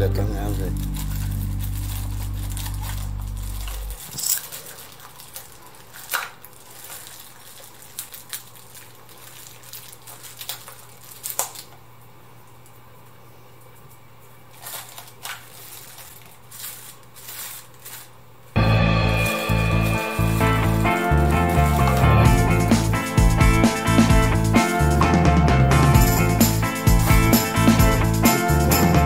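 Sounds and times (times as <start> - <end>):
background music: 0.0 - 4.0, 18.6 - 29.0
plastic packaging crinkling: 0.1 - 12.0, 14.4 - 23.2.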